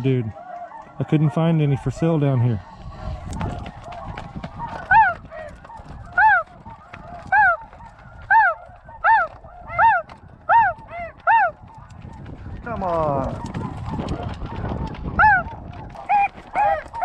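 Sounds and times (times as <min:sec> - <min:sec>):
goose honking: 0:00.0 - 0:11.9, 0:13.1 - 0:17.0
faint goose chatter: 0:00.0 - 0:17.0.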